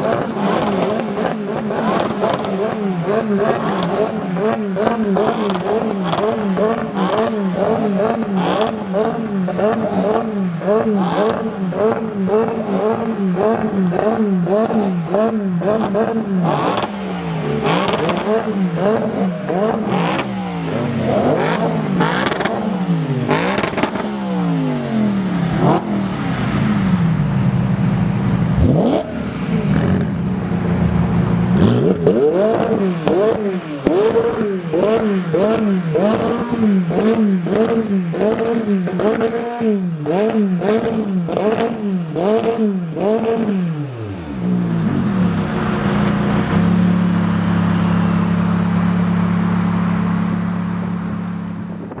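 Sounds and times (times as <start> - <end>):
exhaust cracks: 0.0 - 24.4
car engine idling: 0.0 - 38.4, 44.2 - 52.0
car engines revving: 0.0 - 52.0.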